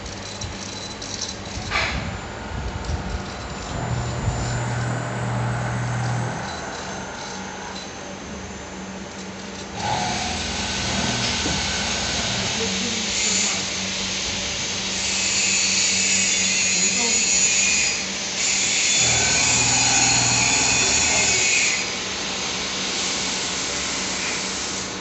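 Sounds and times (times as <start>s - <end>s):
machine low hum: 0.0s - 13.3s.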